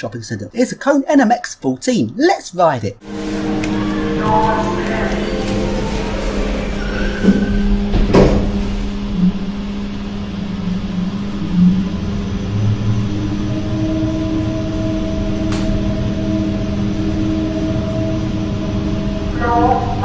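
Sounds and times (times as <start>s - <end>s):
high steady tones: 3.0s - 20.0s
lift drive humming: 3.0s - 20.0s
thump: 7.9s - 8.6s.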